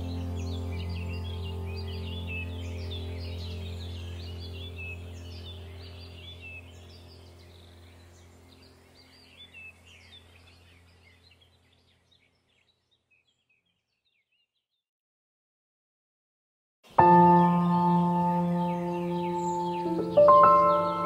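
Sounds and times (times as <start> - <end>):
low steady drone: 0.0 - 11.0, 17.0 - 21.0
birds chirping: 0.0 - 14.7, 16.9 - 21.0.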